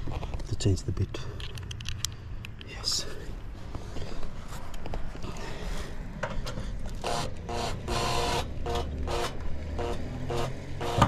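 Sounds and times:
light handling clicks: 0:01.4 - 0:02.8
cordless drill motor whirring: 0:07.0 - 0:11.0.

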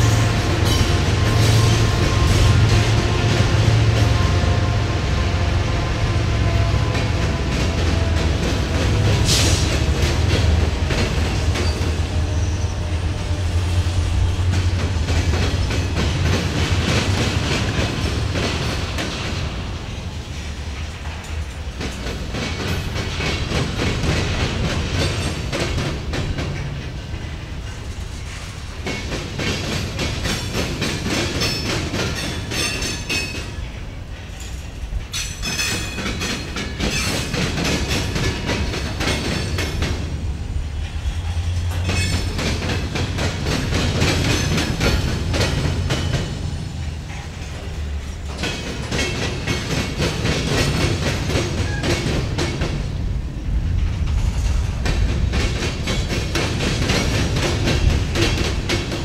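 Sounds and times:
train wheels clattering and banging: 0:00.0 - 0:59.0.

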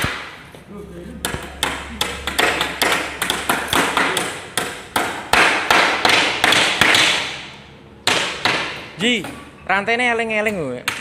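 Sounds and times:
hammers nailing wood: 0:01.2 - 0:09.4.

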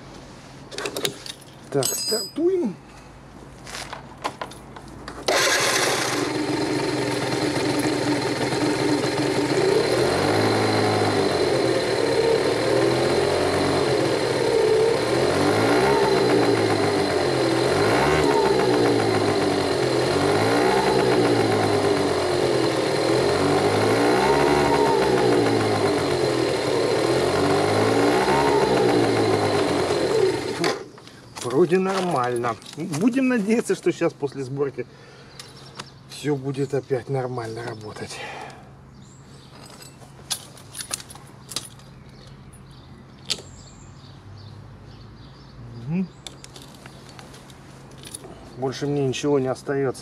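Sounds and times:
scooter engine idling and revving: 0:05.3 - 0:31.0.

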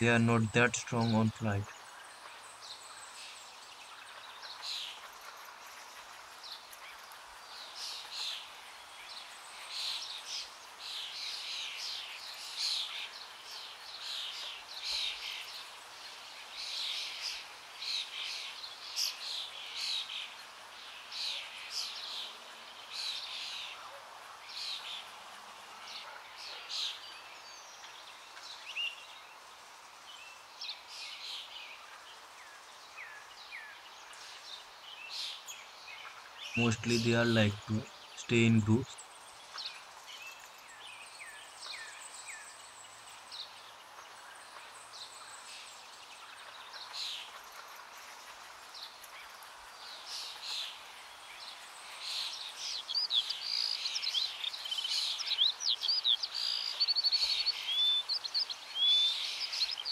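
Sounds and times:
birds chirping in clusters: 0:00.0 - 0:59.9
faint outdoor hiss: 0:00.0 - 0:59.9.

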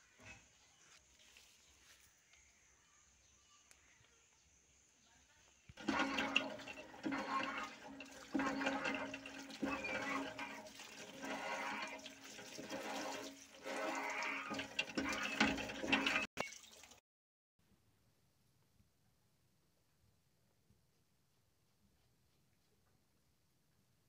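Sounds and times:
water pouring into a steel bowl: 0:05.8 - 0:17.0.

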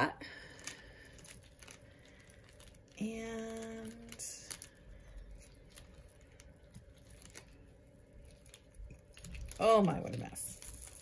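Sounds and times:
woman speaking: 0:00.0 - 0:00.3, 0:03.0 - 0:04.6, 0:09.5 - 0:10.8
beads clicking and rattling: 0:00.0 - 0:11.0.

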